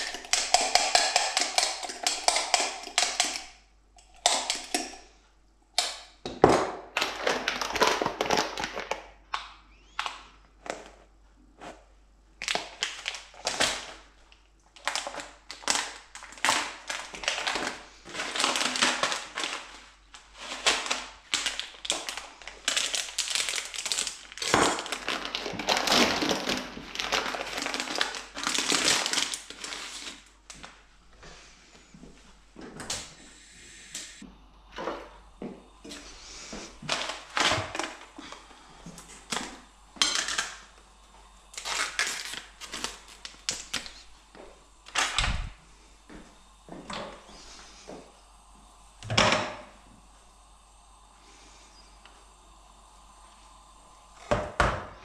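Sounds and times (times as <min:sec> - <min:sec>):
plastic packaging crinkling: 0:06.9 - 0:09.1, 0:12.4 - 0:30.8, 0:35.8 - 0:45.5.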